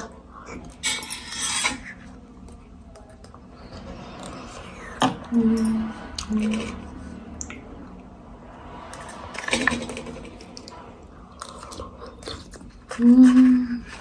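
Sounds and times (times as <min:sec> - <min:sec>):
wet chewing sounds: 0:10.3 - 0:13.0.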